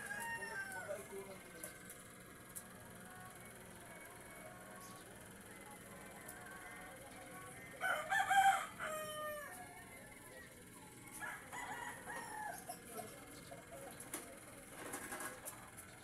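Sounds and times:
faint rooster calls: 0.0s - 1.1s, 7.8s - 9.9s, 11.0s - 12.8s
rooster crowing: 0.0s - 1.1s, 7.8s - 9.8s, 11.0s - 12.8s.

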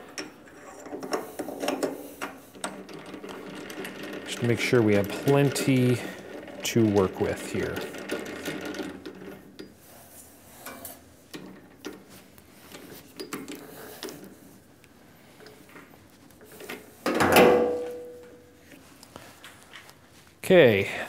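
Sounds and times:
metal clicks and scrapes: 0.0s - 9.4s.

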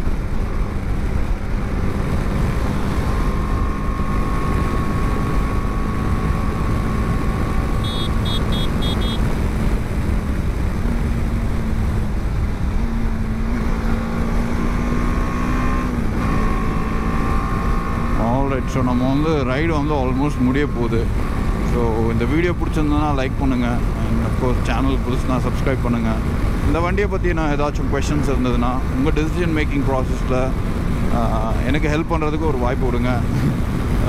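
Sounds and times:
wind rush on microphone: 0.0s - 7.9s, 8.7s - 13.7s
motorcycle engine cruising: 0.0s - 34.0s
high beeps: 7.8s - 9.2s.

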